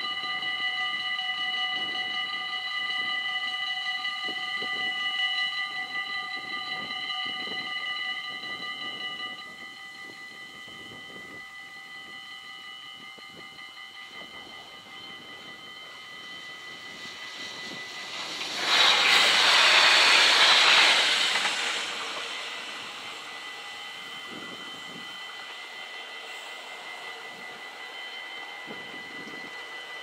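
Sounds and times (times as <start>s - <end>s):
level crossing warning bells: 0.0s - 30.0s
loud rushing noise: 16.8s - 25.0s.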